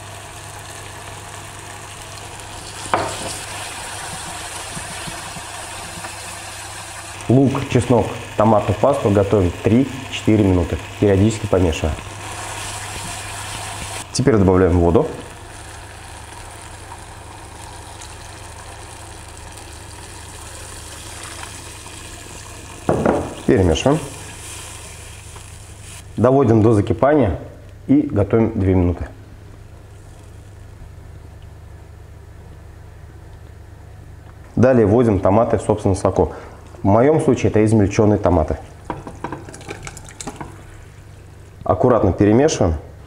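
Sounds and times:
water hissing in hot pan: 0:00.0 - 0:14.2, 0:14.8 - 0:26.2
onion and garlic sizzling in oil: 0:00.0 - 0:26.2
steady low hum: 0:00.0 - 0:43.0.

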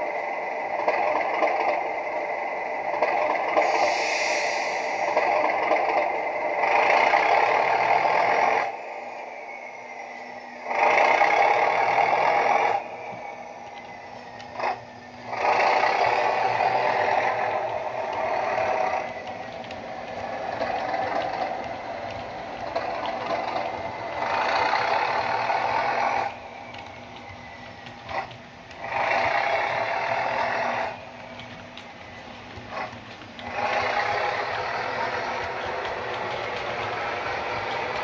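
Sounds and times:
diesel engine through small speaker: 0:13.6 - 0:38.0.

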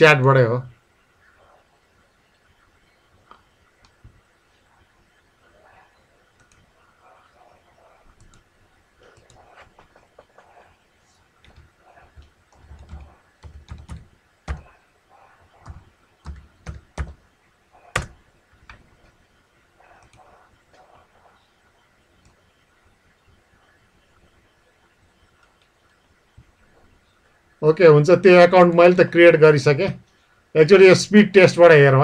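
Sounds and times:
typing on computer keyboard: 0:11.4 - 0:14.7, 0:15.6 - 0:17.2.

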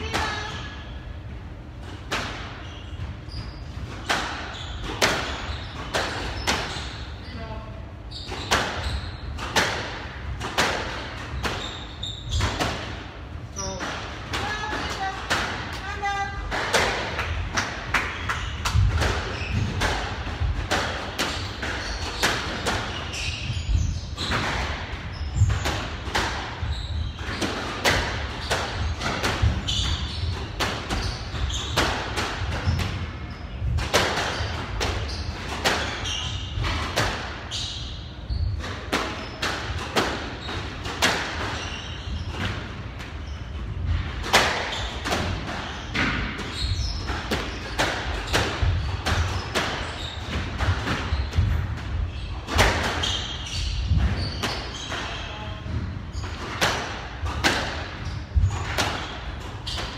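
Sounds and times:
squash ball struck by rackets: 0:03.9 - 0:07.0, 0:08.3 - 0:11.6, 0:16.5 - 0:22.9, 0:24.2 - 0:37.5, 0:38.6 - 0:41.6, 0:42.4 - 0:55.0, 0:55.6 - 0:59.9.

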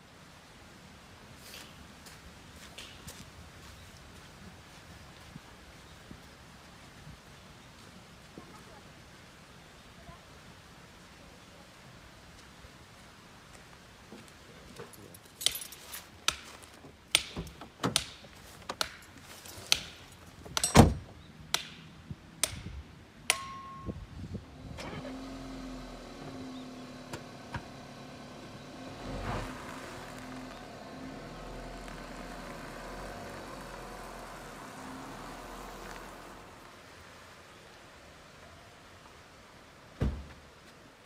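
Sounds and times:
car engine starting and running: 0:24.4 - 0:37.1.

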